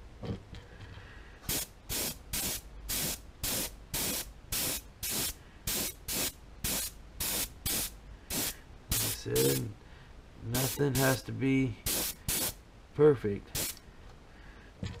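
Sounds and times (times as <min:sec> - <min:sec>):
airbrush spraying bursts: 0:01.5 - 0:09.7, 0:10.6 - 0:11.2, 0:11.8 - 0:12.6, 0:13.5 - 0:13.8.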